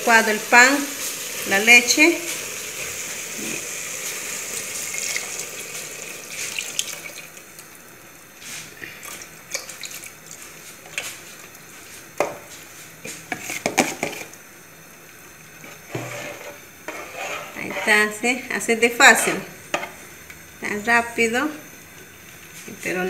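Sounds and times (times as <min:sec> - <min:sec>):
liquid pouring into a pot: 0:00.2 - 0:07.9
spoon clinking and scraping pot: 0:15.7 - 0:18.0.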